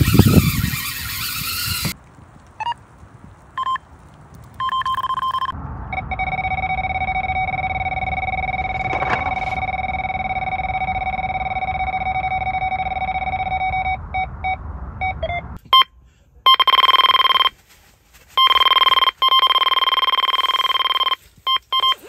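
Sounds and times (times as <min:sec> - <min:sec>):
high-pitched bite alarm: 0:04.6 - 0:15.9
low-pitched bite alarm: 0:04.6 - 0:15.9.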